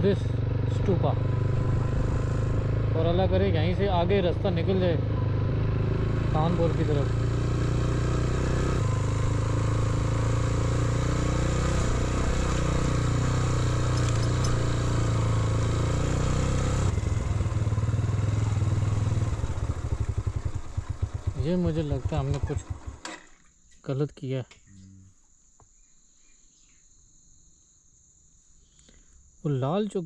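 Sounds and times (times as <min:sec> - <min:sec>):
motorcycle engine running: 0:00.0 - 0:23.4.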